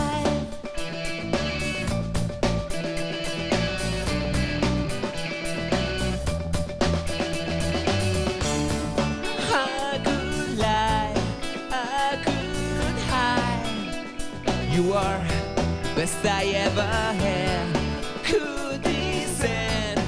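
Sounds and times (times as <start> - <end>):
lead singer: 0.0 - 0.7, 9.2 - 20.0
rock band playing: 0.0 - 20.0.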